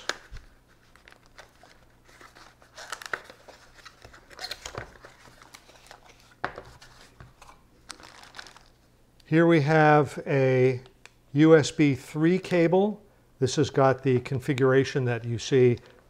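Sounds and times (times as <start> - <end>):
plastic bag crinkling: 0.0 - 6.4, 7.4 - 8.9.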